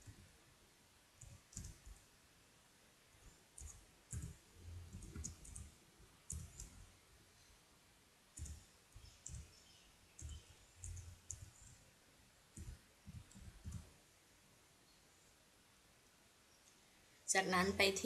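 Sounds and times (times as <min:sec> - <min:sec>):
computer keyboard keystrokes: 0:01.2 - 0:02.0, 0:03.6 - 0:05.7, 0:06.3 - 0:06.8, 0:08.4 - 0:09.5, 0:10.2 - 0:11.8.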